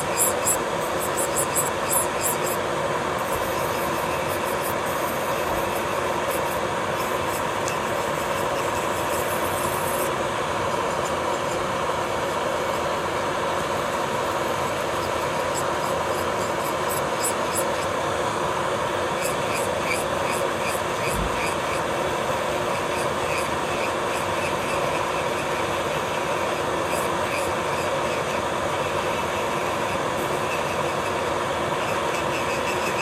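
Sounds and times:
electric nail drill whining: 0:00.0 - 0:10.2
drill bit grinding gel: 0:00.0 - 0:18.0.

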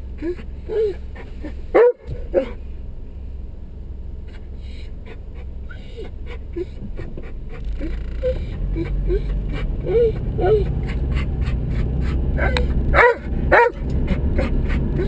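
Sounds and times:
car engine idling: 0:00.0 - 0:15.0
dog whining and whimpering: 0:00.2 - 0:01.6, 0:05.0 - 0:12.8, 0:13.6 - 0:15.0.

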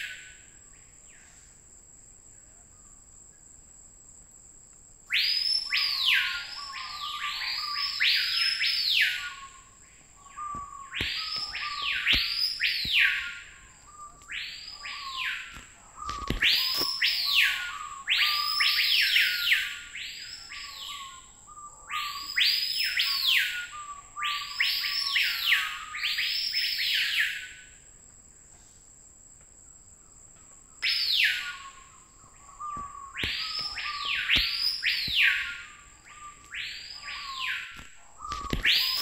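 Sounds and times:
high insect drone: 0:00.0 - 0:39.0
bird whistling calls: 0:05.1 - 0:27.5, 0:30.8 - 0:39.0.

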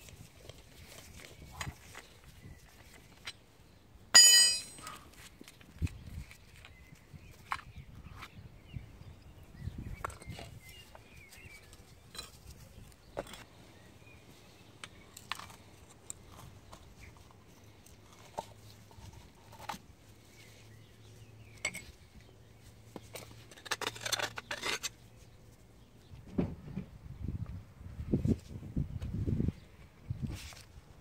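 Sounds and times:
hand tools clinking on metal: 0:04.2 - 0:05.0.

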